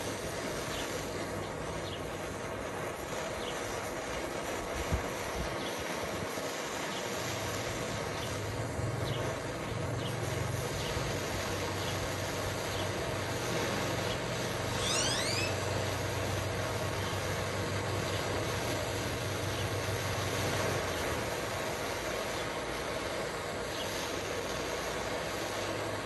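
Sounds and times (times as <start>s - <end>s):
propane torch roaring: 0.0s - 26.0s
short rising chirp: 14.6s - 15.8s.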